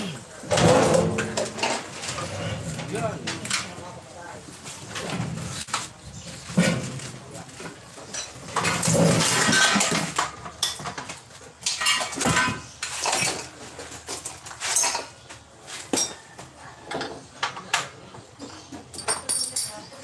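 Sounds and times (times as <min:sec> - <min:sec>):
metal tools clinking: 0:11.6 - 0:15.2, 0:18.9 - 0:20.0.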